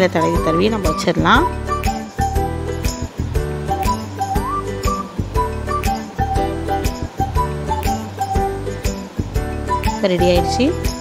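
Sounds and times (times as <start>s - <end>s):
light background music with beat: 0.0s - 11.0s.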